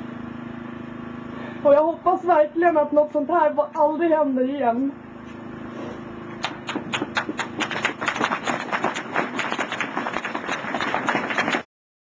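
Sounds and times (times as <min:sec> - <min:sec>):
audience applauding: 0:06.4 - 0:11.7.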